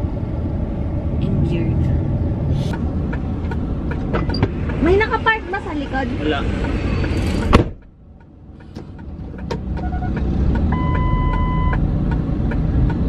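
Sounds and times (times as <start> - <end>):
low car engine: 0.0 - 13.0
road rumble: 0.0 - 13.0
car door shutting: 7.2 - 7.8
electronic beep: 10.7 - 11.8.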